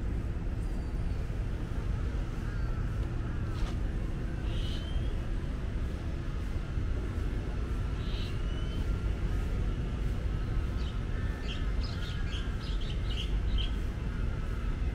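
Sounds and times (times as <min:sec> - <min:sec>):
low rumble of traffic: 0:00.0 - 0:14.9
small birds chirping: 0:04.4 - 0:05.3, 0:07.8 - 0:09.5, 0:10.4 - 0:14.6.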